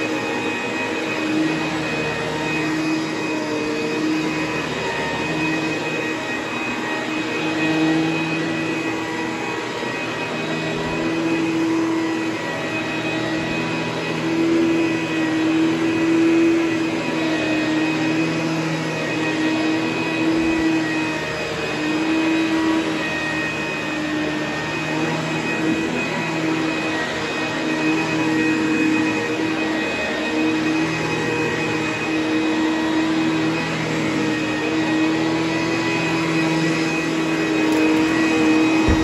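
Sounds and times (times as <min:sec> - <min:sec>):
upright vacuum cleaner running: 0:00.0 - 0:39.0.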